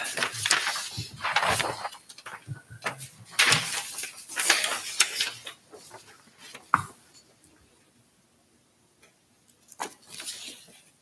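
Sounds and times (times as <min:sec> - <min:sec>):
paper rustling and shuffling: 0:00.0 - 0:06.7, 0:09.7 - 0:11.0.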